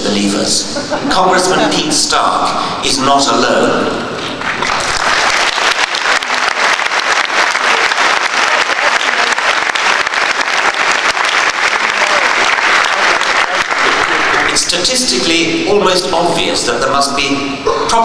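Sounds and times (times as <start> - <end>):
audience applauding: 4.1 - 15.0.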